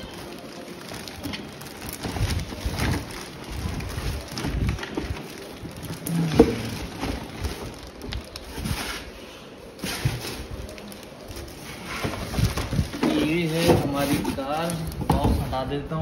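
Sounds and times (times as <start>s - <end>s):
plastic wrapping crinkling: 0.0s - 16.0s
cardboard box rustling and scraping: 8.5s - 10.6s, 11.4s - 15.5s.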